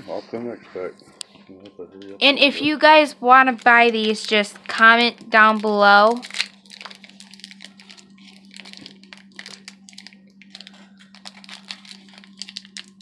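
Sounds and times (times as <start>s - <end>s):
low hum: 0.0s - 13.0s
card packs clicking and crinkling: 3.4s - 13.0s.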